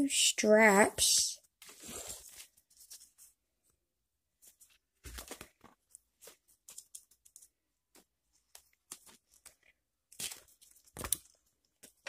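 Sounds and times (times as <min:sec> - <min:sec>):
strap handling rustles and clicks: 0:04.4 - 0:12.0.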